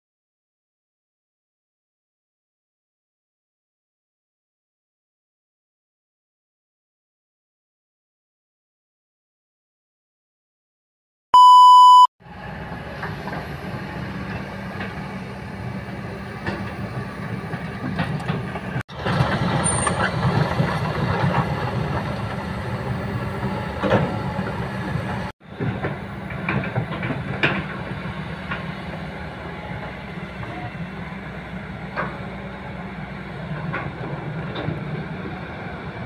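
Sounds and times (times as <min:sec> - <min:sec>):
test-tone beep: 0:11.4 - 0:12.1
excavator diesel engine running: 0:12.2 - 0:36.0.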